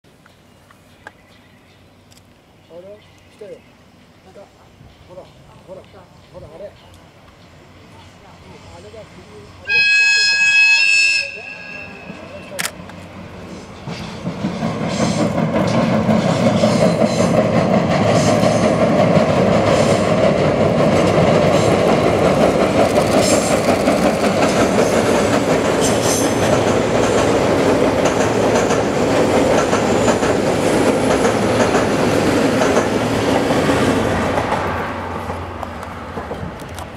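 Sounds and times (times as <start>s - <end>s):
diesel locomotive engine: 1.8s - 36.9s
train wheels clattering on bridge: 12.8s - 36.9s.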